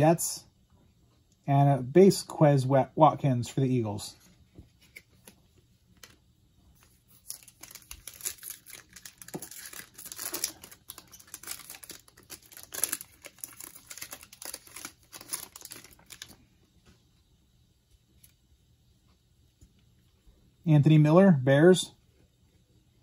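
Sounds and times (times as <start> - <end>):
wrapper tearing and crinkling: 6.8 - 16.4.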